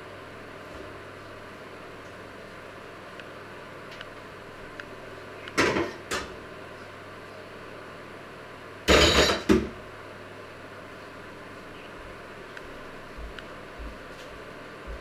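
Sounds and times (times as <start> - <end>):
kitchenware clattering at a sink: 8.9 - 9.7.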